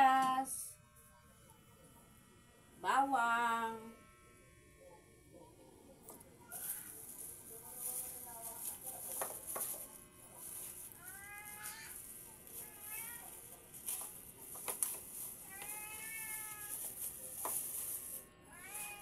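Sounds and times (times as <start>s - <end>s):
cat meowing: 11.0s - 12.0s, 12.6s - 13.2s, 15.4s - 16.8s, 18.5s - 19.0s.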